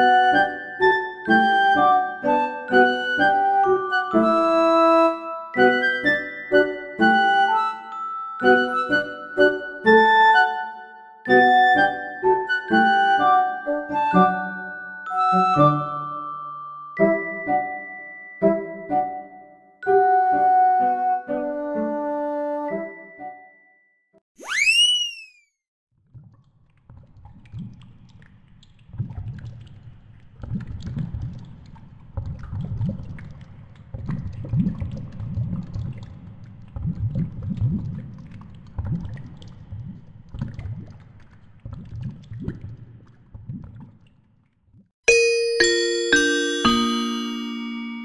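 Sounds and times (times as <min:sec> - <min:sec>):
soft background music: 0:00.0 - 0:23.6, 0:45.1 - 0:48.0
bright chime jingle: 0:45.1 - 0:48.0.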